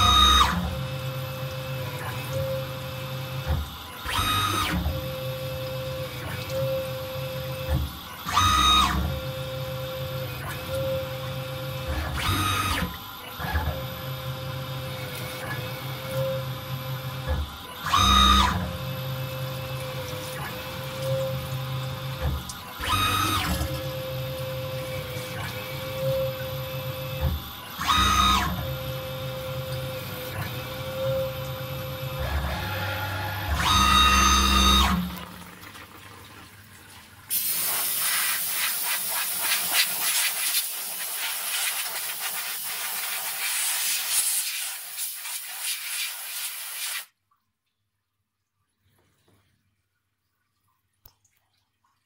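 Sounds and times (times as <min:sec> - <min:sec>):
steady motor hum: 0:00.0 - 0:37.4
higher motor whine bursts: 0:27.8 - 0:35.3.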